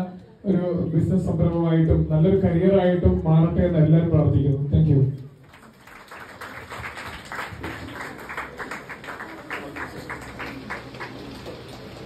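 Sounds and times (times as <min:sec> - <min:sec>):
scattered handclaps: 0:05.4 - 0:12.0.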